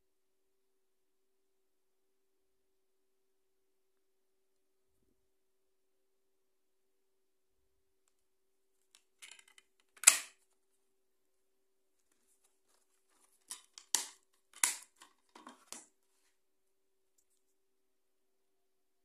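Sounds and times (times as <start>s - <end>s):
plastic case clicking: 9.2s - 10.4s, 13.4s - 15.9s
plastic case snapping shut: 10.0s - 10.4s.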